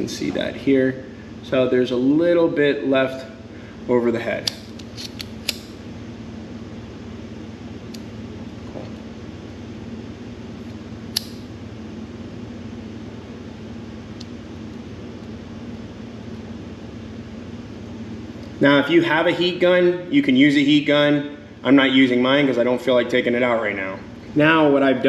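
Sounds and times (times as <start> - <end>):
fan humming: 0.0 - 25.0
sharp click: 4.4 - 5.8, 11.1 - 11.5.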